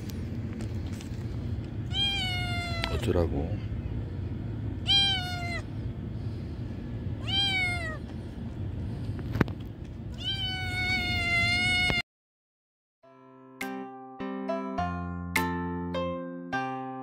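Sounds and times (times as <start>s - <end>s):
cat meowing: 1.9s - 3.0s, 4.8s - 5.7s, 7.2s - 8.1s, 10.1s - 12.0s.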